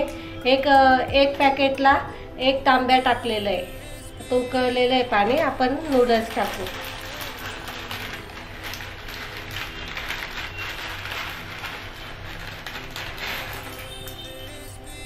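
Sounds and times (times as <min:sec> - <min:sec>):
soft music: 0:00.0 - 0:15.0.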